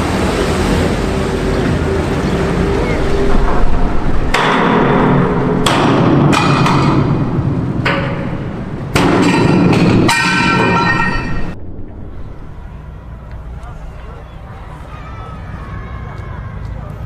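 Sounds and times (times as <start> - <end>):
yard noise: 8.0 - 17.0.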